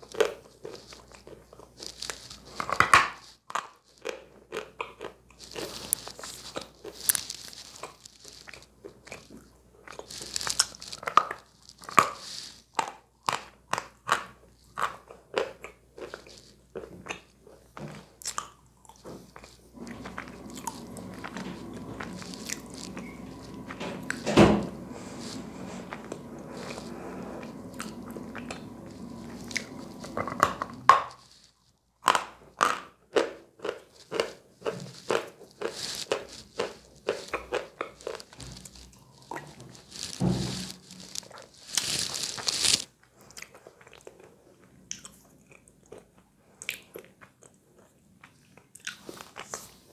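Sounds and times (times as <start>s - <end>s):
chalk crunching between teeth: 0.0s - 24.2s, 24.9s - 43.6s
steady hum: 19.6s - 31.0s.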